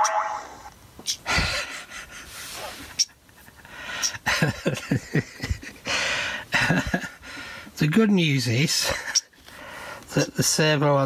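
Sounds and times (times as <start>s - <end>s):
breathy hiss: 9.4s - 10.1s.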